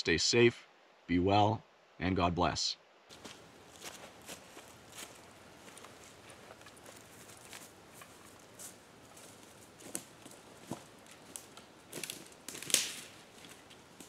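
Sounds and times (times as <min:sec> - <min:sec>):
footsteps crunching dry leaves: 0:03.1 - 0:14.0.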